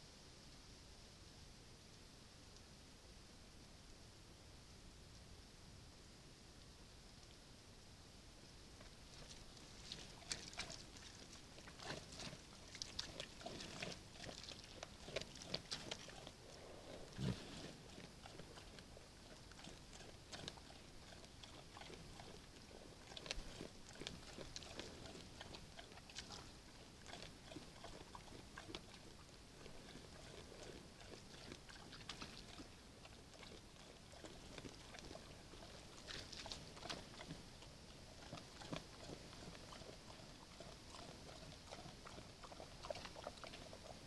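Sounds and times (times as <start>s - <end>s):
bear chewing: 8.8s - 44.0s.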